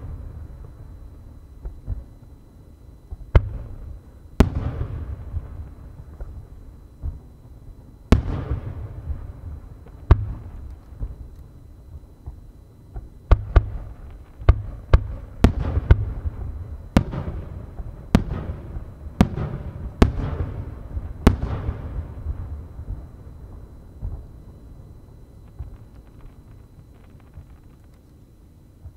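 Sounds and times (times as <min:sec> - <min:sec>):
firework booms echoing: 0:12.2 - 0:23.1.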